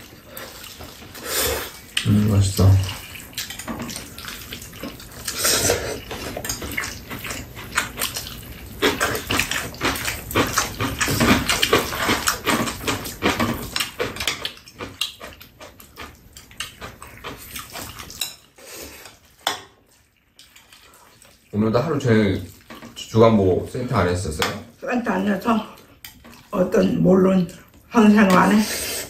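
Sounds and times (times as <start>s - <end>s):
chewing: 0.0s - 23.1s, 25.2s - 26.9s
slurping: 0.0s - 23.2s.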